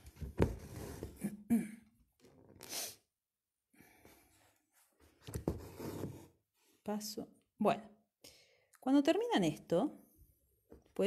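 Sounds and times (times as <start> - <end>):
woman coughing: 1.4 - 1.9
sharp sniff: 2.6 - 3.1.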